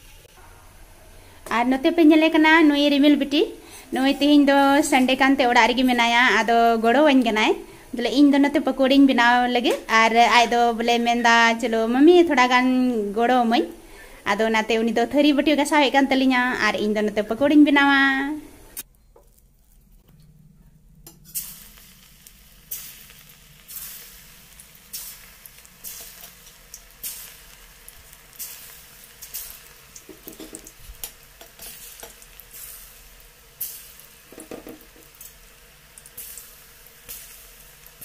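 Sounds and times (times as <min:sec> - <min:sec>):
batter frying in hot oil: 0:21.0 - 0:38.0.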